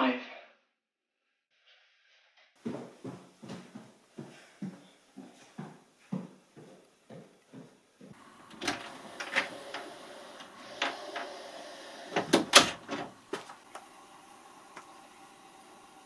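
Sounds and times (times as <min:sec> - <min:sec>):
footsteps on wooden stairs: 0:02.6 - 0:13.9.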